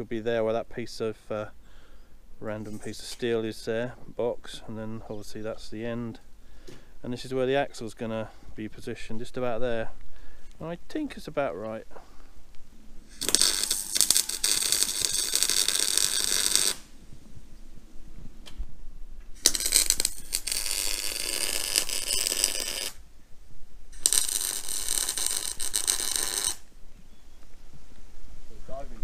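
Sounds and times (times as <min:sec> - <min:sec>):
welder arcing: 0:13.1 - 0:17.0, 0:19.3 - 0:23.0, 0:23.9 - 0:26.8.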